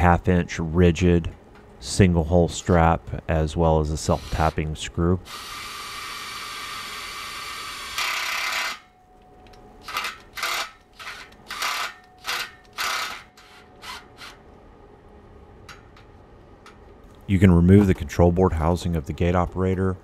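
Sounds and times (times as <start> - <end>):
impact driver driving screw: 9.8 - 14.4.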